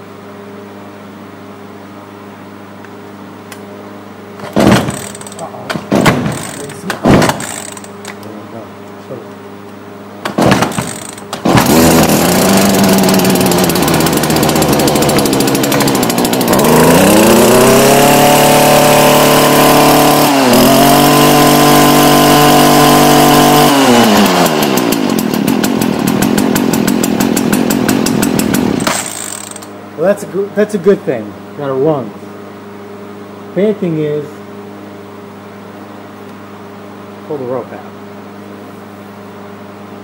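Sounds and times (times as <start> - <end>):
string trimmer engine revving: 4.6 - 8.0, 10.2 - 29.7.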